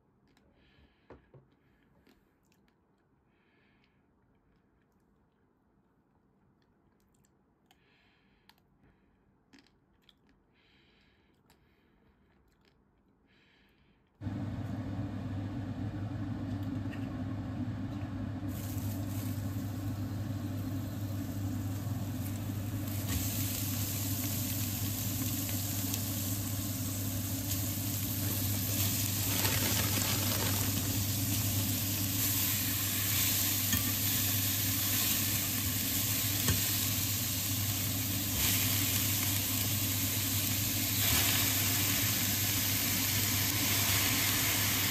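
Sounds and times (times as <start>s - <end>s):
oil sizzling in a pot: 18.4s - 44.9s.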